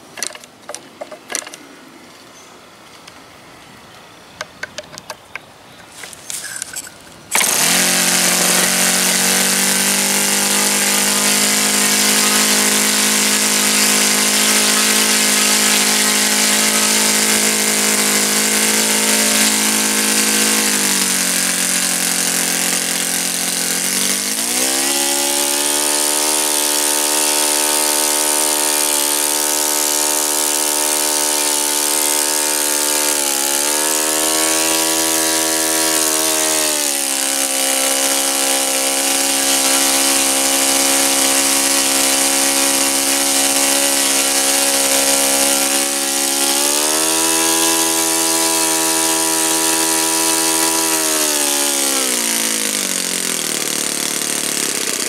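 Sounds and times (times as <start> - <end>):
model glow engine running: 7.3 - 55.0.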